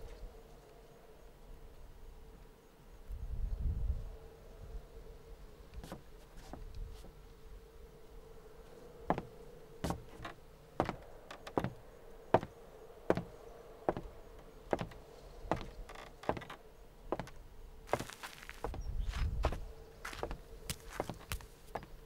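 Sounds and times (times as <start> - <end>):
faint steady hum: 0.0 - 22.0
slow knocks: 9.1 - 11.8, 13.1 - 14.1, 14.7 - 17.4.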